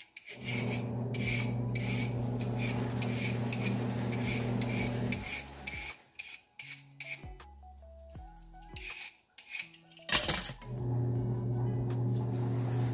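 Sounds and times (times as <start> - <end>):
knife scraping sweet potato: 0.0 - 7.4, 8.7 - 9.8
background music with steady beat: 4.2 - 12.9.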